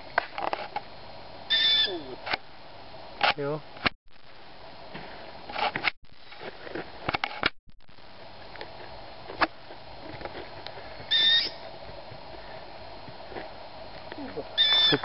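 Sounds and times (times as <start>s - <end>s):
young owl squeaky call: 1.5s - 2.2s, 11.1s - 11.6s, 14.6s - 15.0s.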